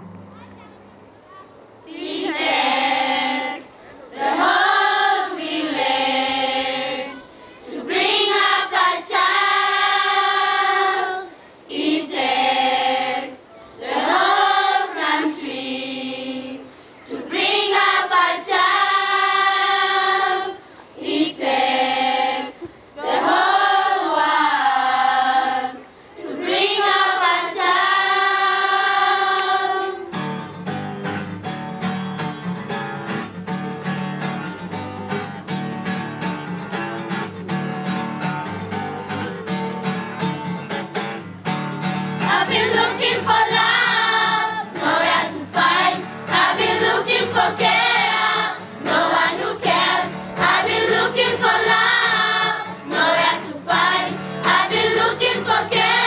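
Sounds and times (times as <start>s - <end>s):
children's choir singing: 1.9s - 30.2s, 42.2s - 56.0s.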